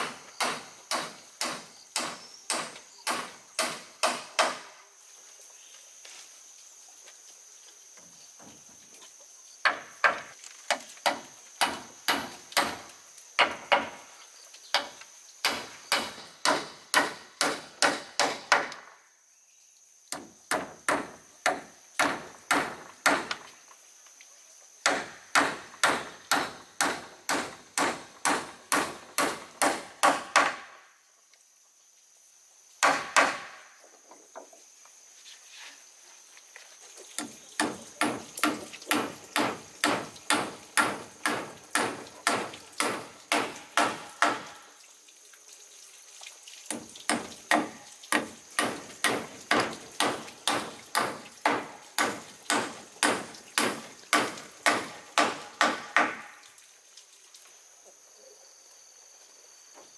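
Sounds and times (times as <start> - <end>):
hand tool striking wood: 0.0 - 4.8, 9.6 - 14.1, 14.7 - 18.9, 20.1 - 23.5, 24.8 - 30.8, 32.8 - 33.7, 37.2 - 44.6, 46.7 - 56.4.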